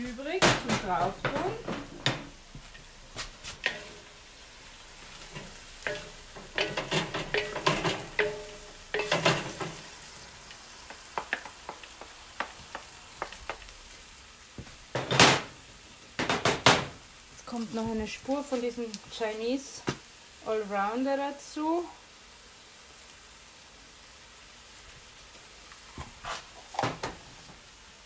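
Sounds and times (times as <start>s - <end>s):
stir-fry sizzling in a wok: 0.0s - 28.0s
spatulas clattering and scraping: 0.3s - 4.1s, 5.1s - 9.9s.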